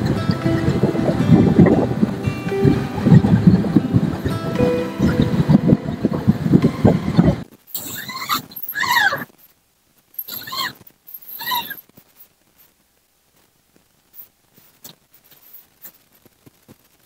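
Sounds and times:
background music: 0:00.0 - 0:07.4
animal calling with arching cries: 0:07.8 - 0:09.3, 0:10.3 - 0:10.8, 0:11.4 - 0:11.8.

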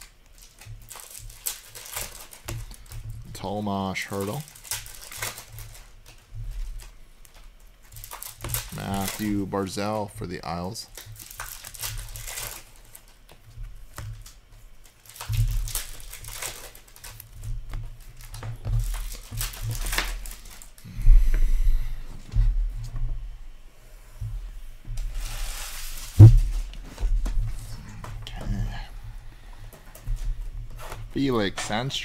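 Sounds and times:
cards and packs rustling: 0:00.0 - 0:20.9
low bumps: 0:26.1 - 0:27.8.

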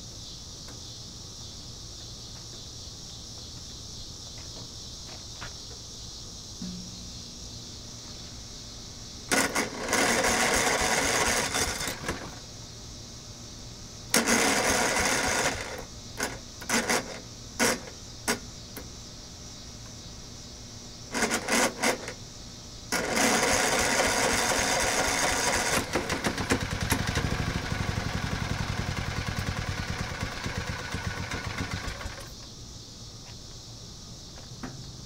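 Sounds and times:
lawn mower engine running roughly: 0:09.3 - 0:12.4, 0:14.1 - 0:17.9, 0:21.1 - 0:22.2, 0:22.9 - 0:32.4
recoil starter cord tugs: 0:09.3 - 0:12.4, 0:14.1 - 0:17.9, 0:22.9 - 0:32.3.

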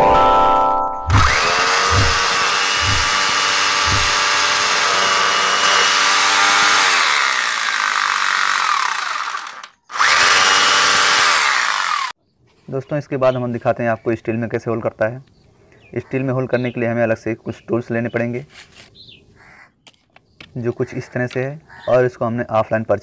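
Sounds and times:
hammer drill boring into brick: 0:01.1 - 0:12.2
dull thud: 0:01.2 - 0:03.3.

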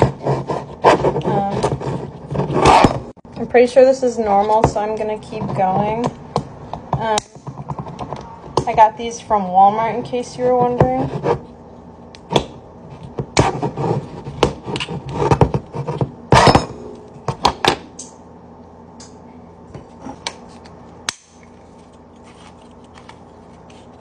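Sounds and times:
hand tool scraping cardboard tube: 0:00.0 - 0:03.0, 0:13.4 - 0:16.1.

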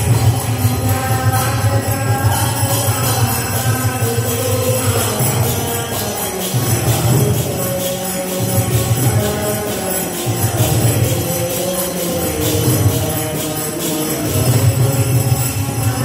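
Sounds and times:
hand cymbals clashing: 0:00.0 - 0:16.0.

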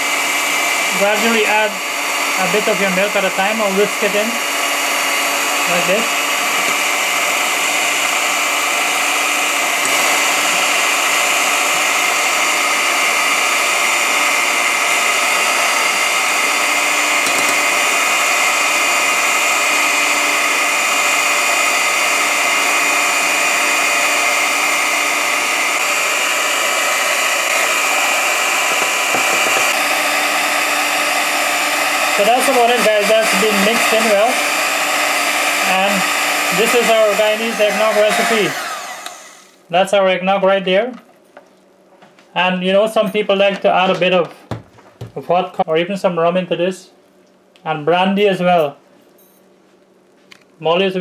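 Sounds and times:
electric hand mixer whining: 0:00.0 - 0:39.7.

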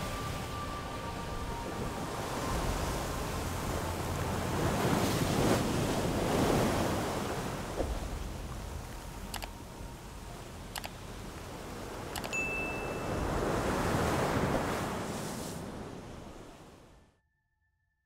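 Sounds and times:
wind and water rushing: 0:00.0 - 0:17.0
mouse clicks: 0:09.3 - 0:09.5, 0:12.2 - 0:12.4.

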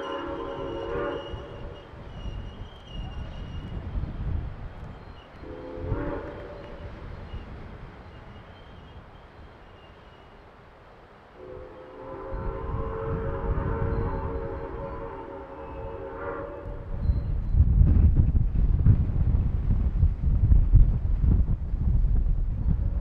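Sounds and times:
locomotive whistle blast: 0:00.0 - 0:03.8, 0:05.0 - 0:07.5, 0:11.4 - 0:17.3
rumble of rolling train cars: 0:00.0 - 0:23.0.

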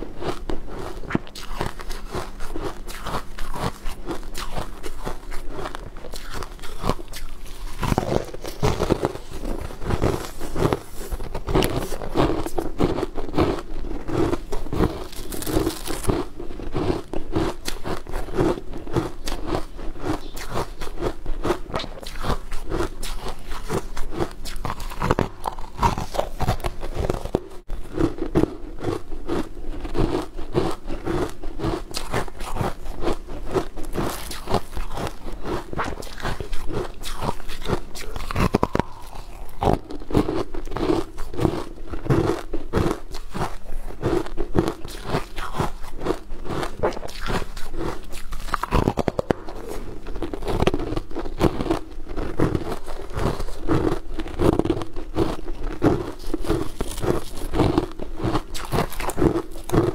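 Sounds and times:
biting and crunching pastries: 0:00.0 - 0:59.9
wet mouth clicks: 0:06.1 - 0:12.6, 0:56.0 - 0:59.9.

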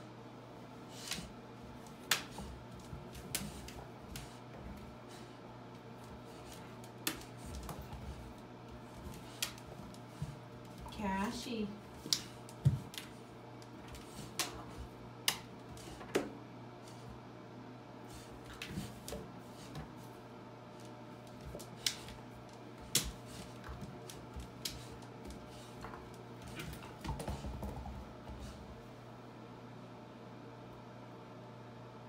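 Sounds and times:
low steady hum: 0:00.0 - 0:32.0
puppy claws clicking on bathtub: 0:11.9 - 0:13.1.

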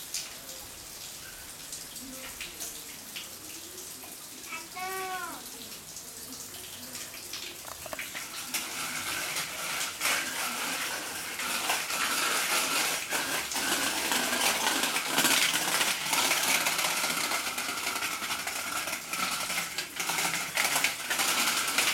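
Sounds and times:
bicycle rattling over paving: 0:07.6 - 0:21.9.

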